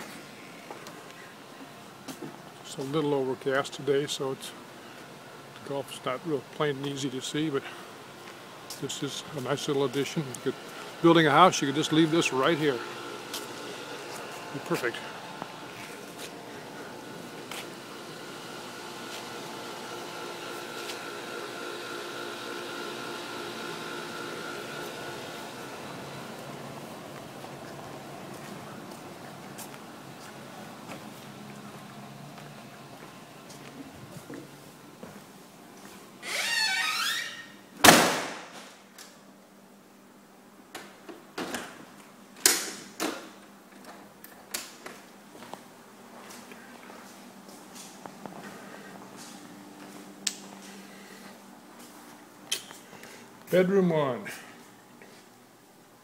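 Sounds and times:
mechanical hum with high whine: 0.0s - 56.0s
door squeaking: 36.2s - 37.6s
door shutting with a bang: 37.8s - 38.6s.

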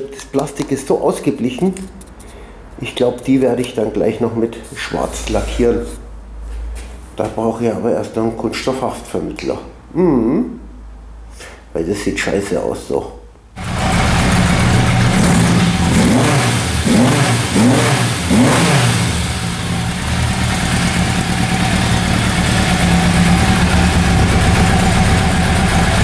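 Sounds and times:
motorcycle engine revving and idling: 13.6s - 26.0s.

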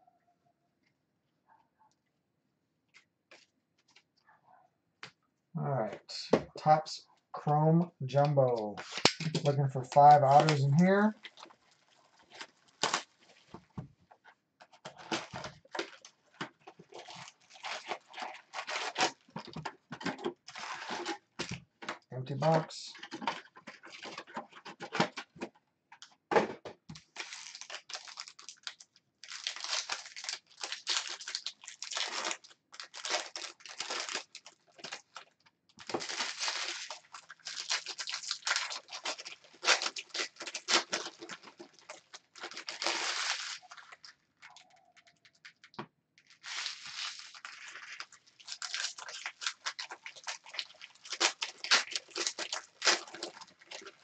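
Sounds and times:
foil wrappers tearing and crinkling: 8.8s - 13.6s, 14.9s - 21.6s, 22.3s - 25.2s, 27.0s - 54.0s.

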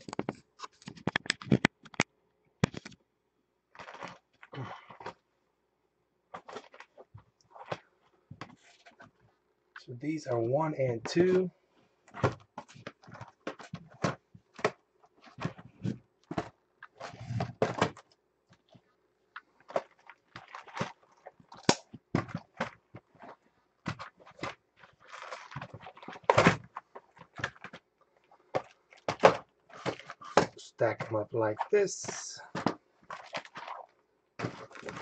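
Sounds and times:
cardboard rustling: 19.6s - 35.0s.

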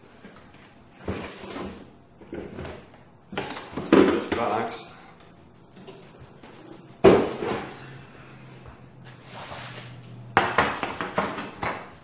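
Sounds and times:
plastic bag crinkling: 9.0s - 10.2s.

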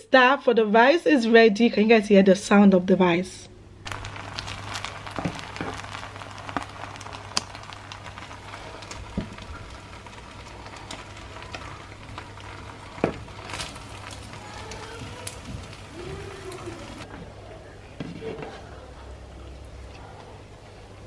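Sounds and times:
rice crackling and sizzling in pot: 3.8s - 17.1s.

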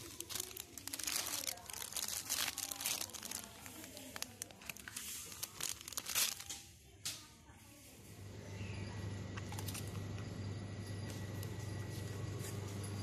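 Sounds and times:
plastic bags crinkling: 0.0s - 7.0s.

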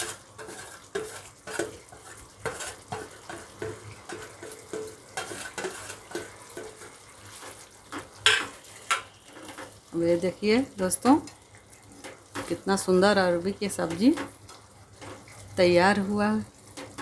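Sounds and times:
metal spatula scraping a pan: 0.0s - 16.0s, 16.7s - 17.0s
gravy sizzling faintly: 0.0s - 17.0s.

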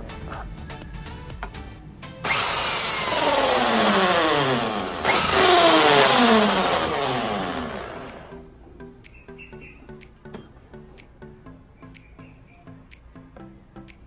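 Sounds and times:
drill hole saw grinding plastic: 2.2s - 8.3s.

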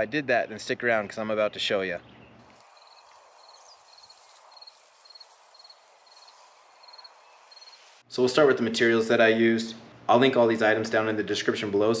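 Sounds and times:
soft outdoor hiss: 0.0s - 12.0s
cricket chirping: 2.5s - 8.0s.

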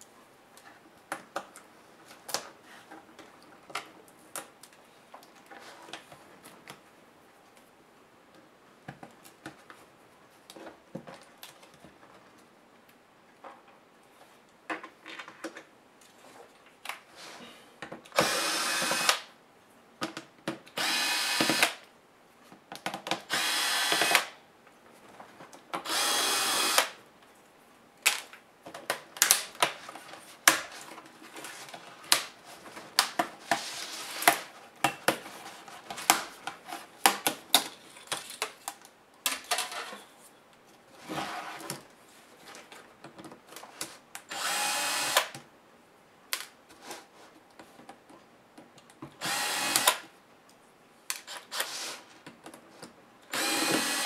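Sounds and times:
electric screwdriver whirring: 18.2s - 19.3s, 20.8s - 21.8s, 23.3s - 24.3s, 25.8s - 27.0s, 44.3s - 45.3s, 49.2s - 50.0s, 53.3s - 54.0s
plastic clicks and snaps: 46.3s - 46.6s.

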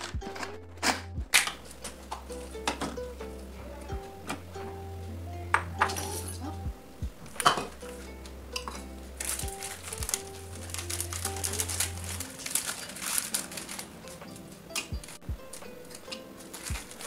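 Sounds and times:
background music: 0.0s - 17.0s
plastic wrapper crinkling: 9.2s - 15.2s, 16.4s - 17.0s.

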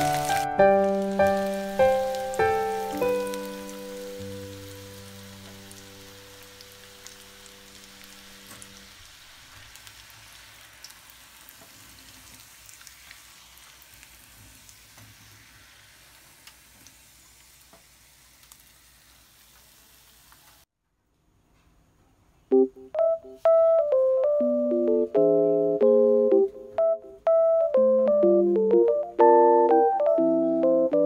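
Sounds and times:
oil sizzling: 0.0s - 20.7s.

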